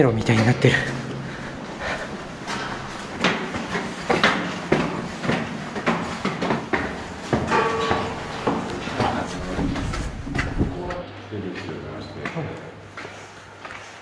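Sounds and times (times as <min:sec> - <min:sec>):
footsteps on concrete stairs: 0:00.0 - 0:10.9.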